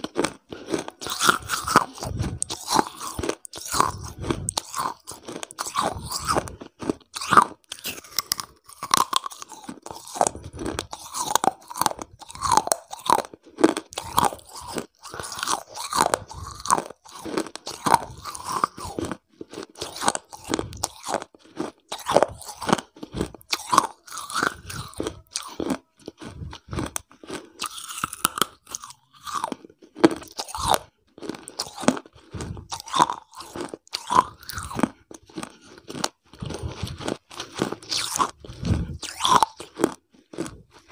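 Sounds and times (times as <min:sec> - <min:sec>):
crunchy chewing: 0:00.0 - 0:40.9.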